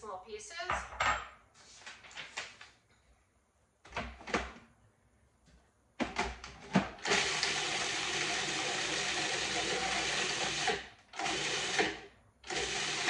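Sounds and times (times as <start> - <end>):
food processor motor running: 7.0 - 13.0.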